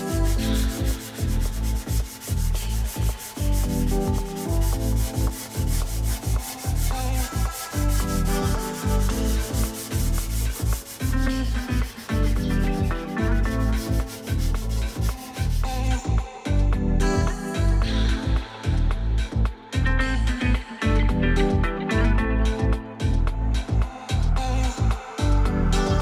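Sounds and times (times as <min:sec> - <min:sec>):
sandpaper rubbing on wood: 0:00.0 - 0:16.0
background music with bass: 0:00.0 - 0:26.0.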